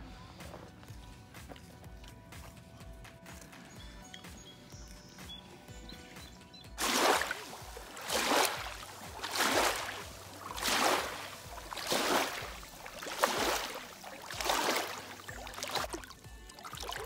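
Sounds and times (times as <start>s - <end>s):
waves lapping on shore: 6.8s - 17.0s.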